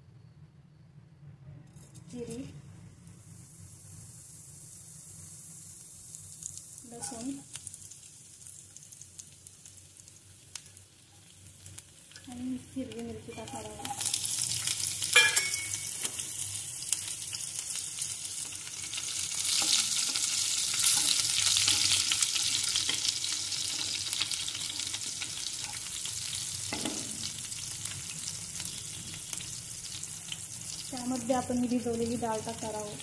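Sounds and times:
spices sizzling in hot oil: 0:01.7 - 0:33.0
knock on pan: 0:26.7 - 0:27.2.

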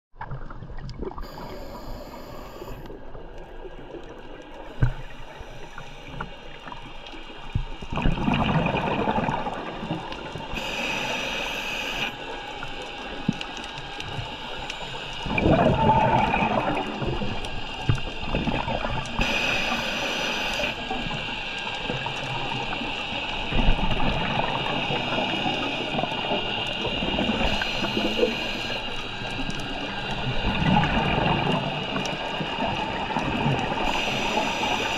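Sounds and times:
regulator inhalation hiss: 0:01.2 - 0:03.0, 0:10.4 - 0:15.6, 0:16.3 - 0:34.9
bubbling exhalations: 0:15.2 - 0:17.3.

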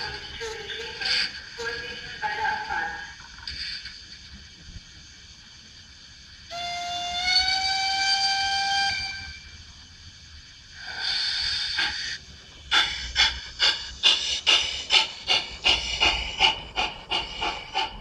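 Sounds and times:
steam locomotive chuffing: 0:00.0 - 0:03.9, 0:06.3 - 0:09.6, 0:10.6 - 0:18.0
steam hiss: 0:03.4 - 0:18.0
steam whistle: 0:06.5 - 0:09.6.

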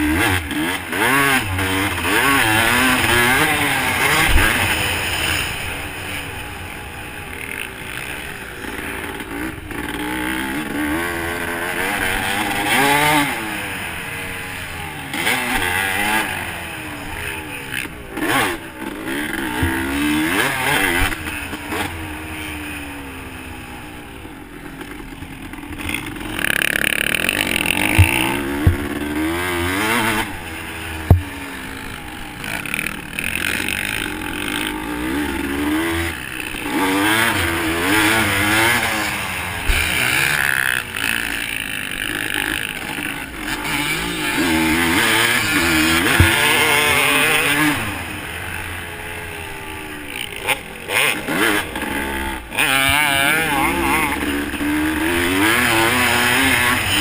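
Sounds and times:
dirt bike engine revving: 0:00.0 - 0:57.0
sharp knocks: 0:31.0 - 0:31.3.

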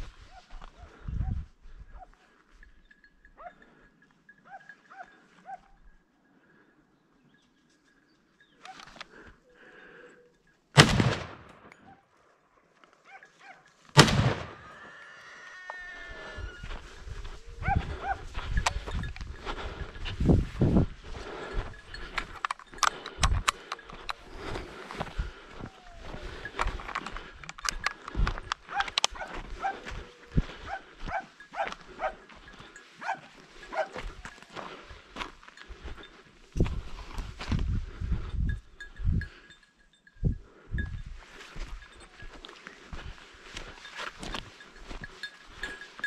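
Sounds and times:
gunshots with echo: 0:10.8 - 0:11.7, 0:14.0 - 0:14.6
high yelping animal calls: 0:14.6 - 0:18.9
footsteps crunching on dirt: 0:15.7 - 0:38.6, 0:40.8 - 0:46.0
distant dog barking: 0:17.6 - 0:18.4, 0:28.7 - 0:32.3, 0:33.0 - 0:34.0.

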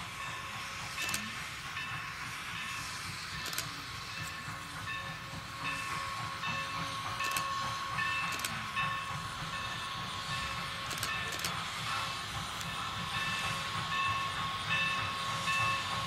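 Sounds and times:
steam train rumbling past: 0:00.0 - 0:16.0.

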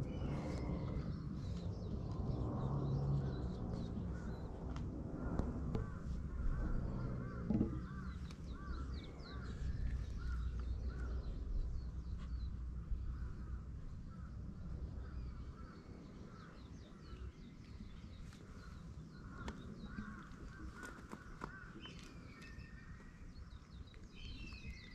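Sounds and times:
crows cawing: 0:05.8 - 0:09.5
small birds chirping: 0:05.8 - 0:24.9.

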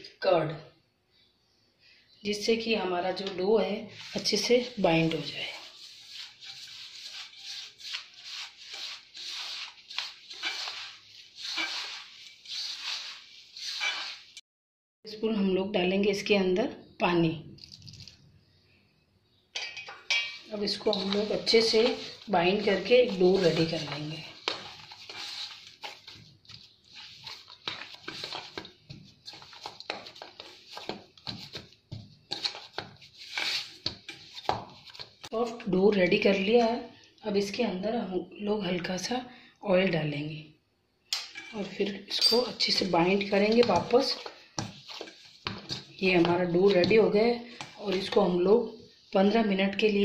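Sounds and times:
dough scraping in steel bowl: 0:03.8 - 0:14.4, 0:20.3 - 0:35.3, 0:41.4 - 0:49.4.

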